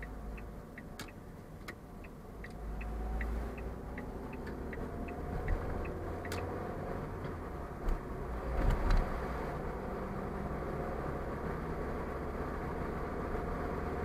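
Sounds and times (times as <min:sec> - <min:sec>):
turn signal ticking: 0:00.0 - 0:09.2
car road and engine noise: 0:00.0 - 0:14.0.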